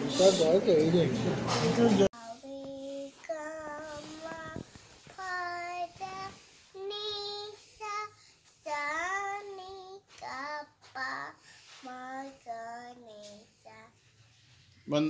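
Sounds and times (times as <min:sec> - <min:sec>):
girl singing wordlessly: 0:02.2 - 0:14.2.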